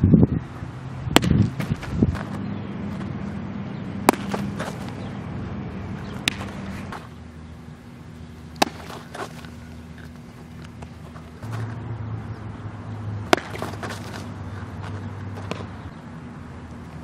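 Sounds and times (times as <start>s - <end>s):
baseball smacking into a mitt: 1.1s - 2.4s, 4.0s - 5.0s, 6.1s - 7.1s, 8.5s - 9.6s, 13.2s - 15.7s.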